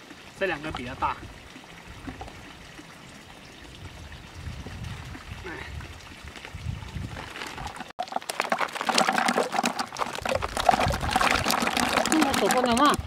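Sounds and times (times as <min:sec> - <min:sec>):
snails splashing into water: 0:08.0 - 0:13.0.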